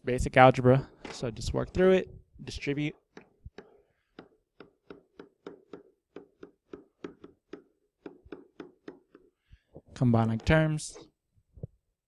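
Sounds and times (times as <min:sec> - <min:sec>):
stylus tapping on tablet screen: 0:03.1 - 0:09.4.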